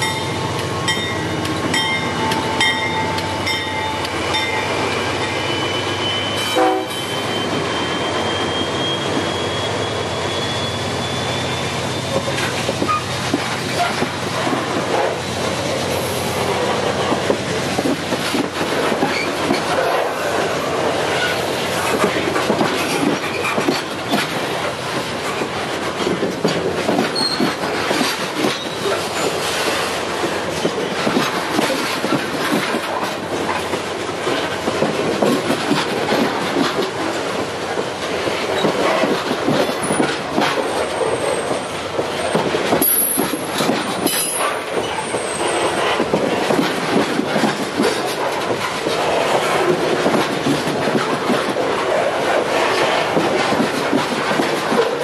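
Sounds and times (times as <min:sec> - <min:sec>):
train wheels rumbling on rails: 0:00.0 - 0:55.0
wheel squeals: 0:02.6 - 0:13.2, 0:27.1 - 0:27.6, 0:28.4 - 0:29.6
wheels clattering over rail joints: 0:15.6 - 0:55.0.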